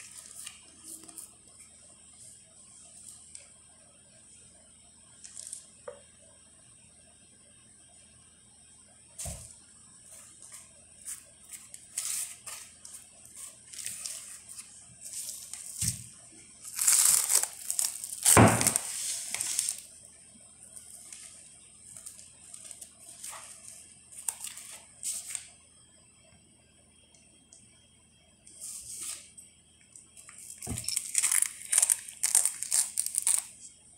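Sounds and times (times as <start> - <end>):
cling film crinkling: 16.6 - 19.9, 30.2 - 33.7.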